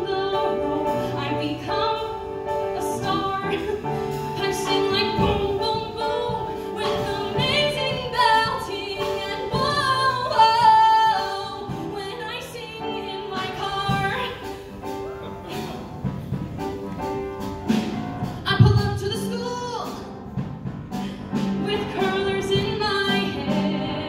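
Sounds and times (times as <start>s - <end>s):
woman singing into microphone: 0.0s - 14.6s, 21.6s - 24.0s
piano accompaniment: 0.0s - 24.0s.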